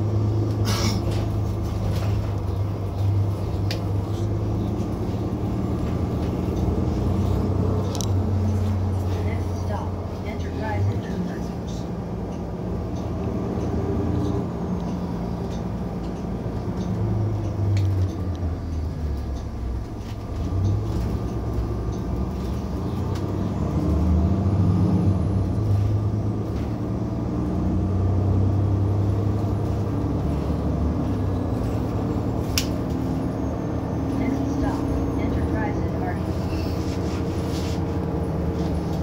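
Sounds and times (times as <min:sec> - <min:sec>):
bus engine rumbling: 0:00.0 - 0:39.0.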